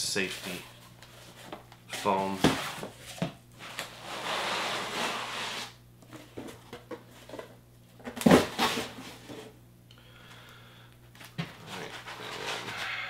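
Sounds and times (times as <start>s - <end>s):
foam scraping out of cardboard box: 4.0s - 5.8s.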